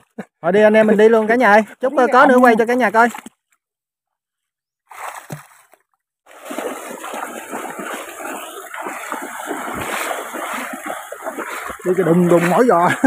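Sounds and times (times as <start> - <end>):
water splashing from wading: 4.9 - 13.0.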